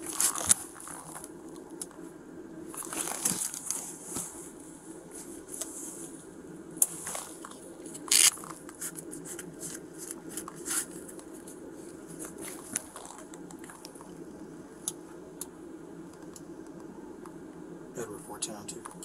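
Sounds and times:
clothing rustling on microphone: 0.0s - 1.3s, 2.7s - 6.2s, 6.8s - 14.2s
steady low hum: 0.0s - 19.0s.

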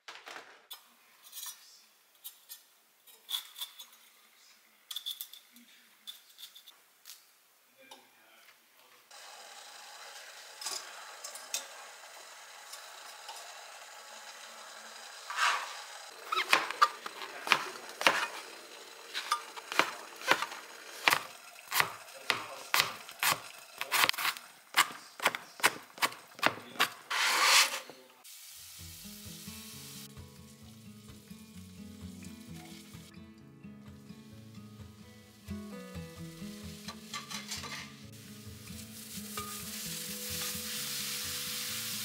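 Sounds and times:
knife scrape: 15.3s - 18.5s, 19.1s - 28.0s
knife chopping on cutting board: 16.3s - 18.5s, 19.1s - 27.8s
background music: 28.8s - 42.0s.

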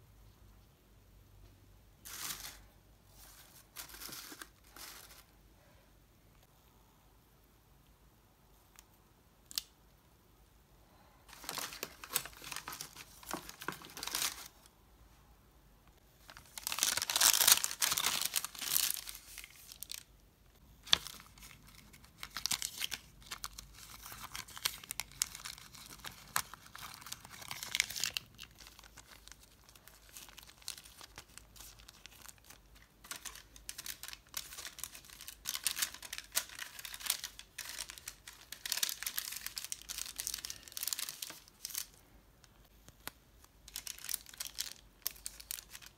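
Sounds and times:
paper and plastic crinkling: 2.0s - 5.3s, 11.3s - 14.7s, 16.2s - 20.1s, 20.8s - 42.0s, 42.8s - 45.9s.

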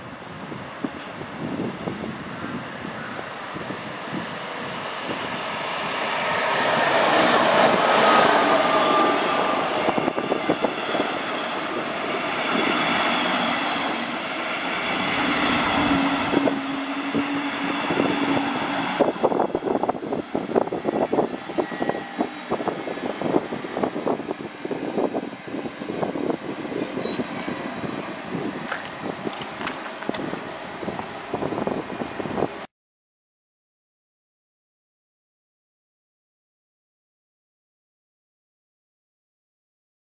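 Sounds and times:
train rumbling past: 0.4s - 32.7s
high squeal: 21.5s - 22.8s, 25.2s - 27.9s
wheels clattering over rail joints: 28.6s - 30.6s.

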